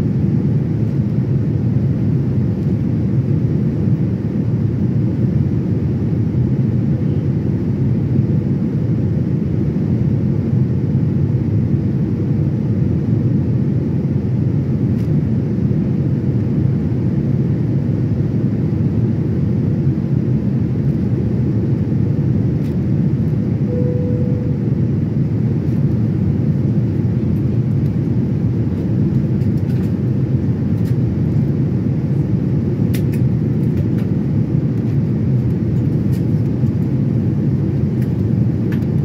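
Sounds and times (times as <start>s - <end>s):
faint tone: 23.6s - 24.8s.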